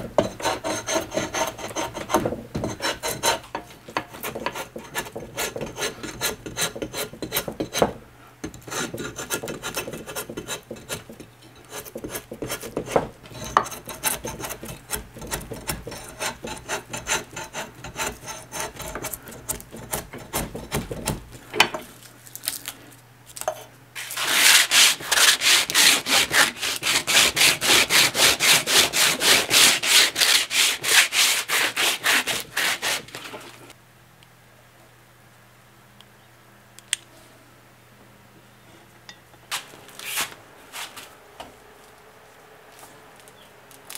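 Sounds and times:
drawknife scraping wood: 0.1s - 7.9s, 8.5s - 21.2s, 23.4s - 33.6s.

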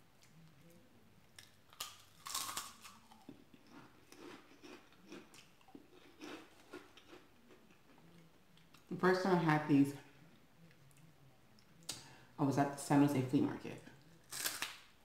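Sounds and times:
crunchy snack biting and chewing: 1.4s - 7.9s, 14.2s - 14.9s.

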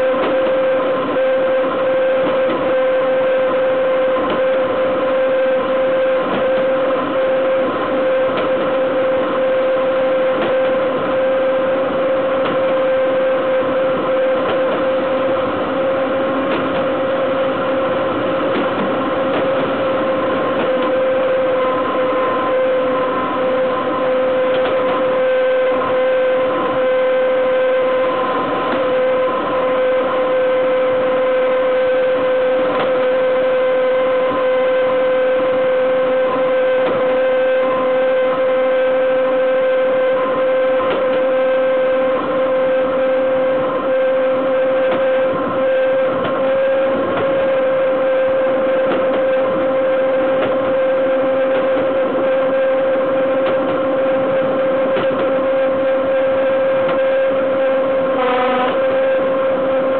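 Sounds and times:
high-pitched whine: 0.0s - 59.9s
train wheels rumbling on rails: 9.8s - 29.1s.

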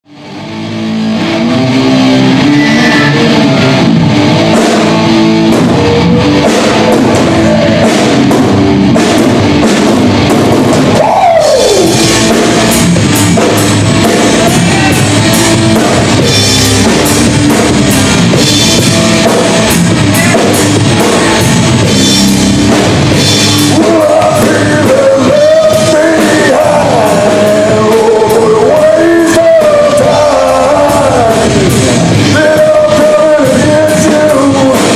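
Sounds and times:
live rock band playing: 0.1s - 34.9s
person singing: 1.2s - 8.3s, 10.9s - 12.4s, 14.0s - 15.9s, 23.4s - 34.9s.

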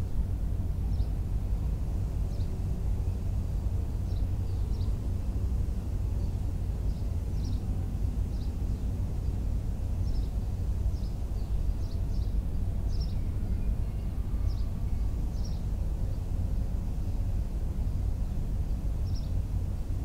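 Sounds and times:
steady low rumble: 0.0s - 20.0s.

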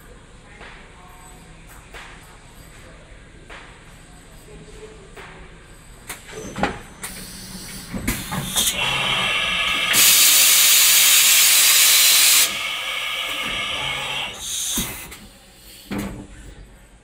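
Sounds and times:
compressed air blast: 8.1s - 15.9s.

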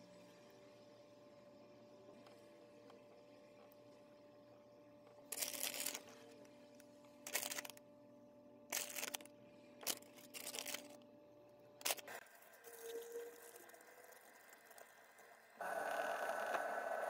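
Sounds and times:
plastic packet crinkling: 5.3s - 6.1s, 7.3s - 7.8s, 8.7s - 11.0s, 11.8s - 12.2s.

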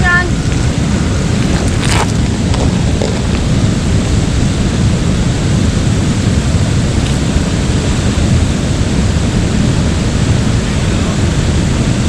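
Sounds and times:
river flowing: 0.0s - 9.3s
wind buffeting microphone: 0.0s - 12.0s.

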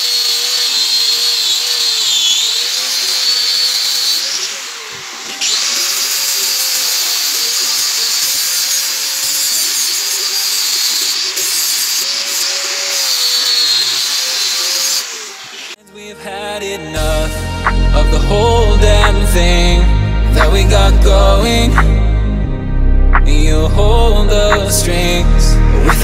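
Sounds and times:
angle grinder grinding steel: 0.0s - 15.8s.

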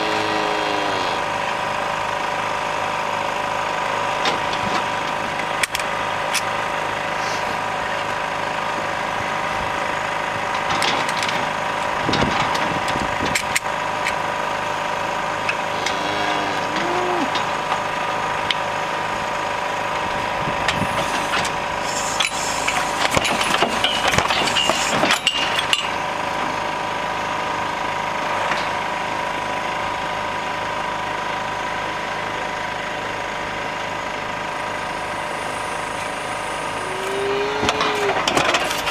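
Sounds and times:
engine running: 0.0s - 38.9s
metal clanks and rattles: 10.5s - 14.2s, 22.2s - 26.0s, 37.6s - 38.9s.

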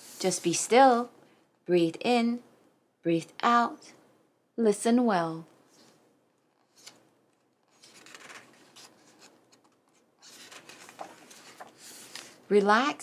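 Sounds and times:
book pages turning: 6.5s - 12.4s.

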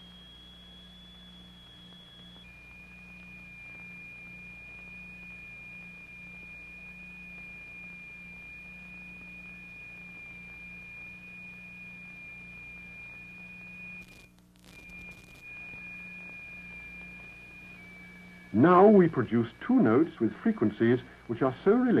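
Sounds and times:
high pure sine tone: 0.0s - 22.0s
low hum: 0.0s - 22.0s
clicks: 14.0s - 17.4s.

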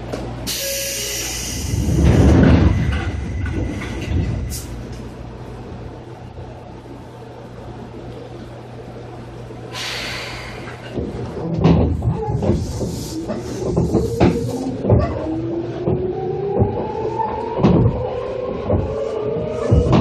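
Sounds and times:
train hum: 0.0s - 20.0s
compressed air hiss: 0.5s - 2.0s, 9.7s - 10.8s.

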